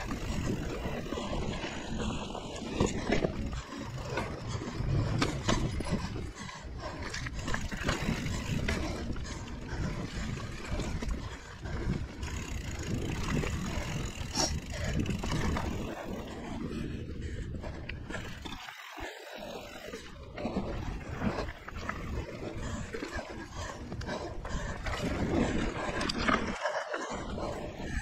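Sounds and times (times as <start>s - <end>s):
bike knocking and rattling: 0.0s - 16.4s
wind on microphone: 0.0s - 18.6s, 19.5s - 28.0s
bike tyres rumbling on dirt: 0.0s - 28.0s.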